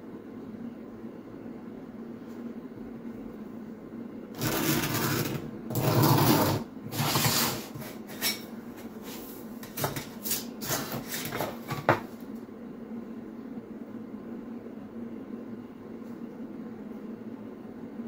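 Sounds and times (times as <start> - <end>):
pencil scraping along steel square: 4.4 - 7.7.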